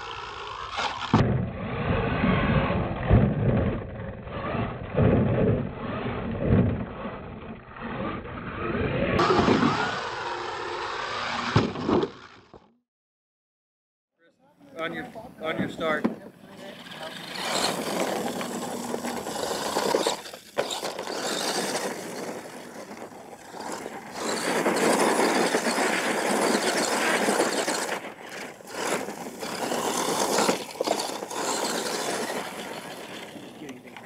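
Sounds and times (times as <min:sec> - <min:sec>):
rc truck drivetrain whirring: 0:00.0 - 0:12.7, 0:14.7 - 0:34.0
tyres churning dirt: 0:15.6 - 0:34.0.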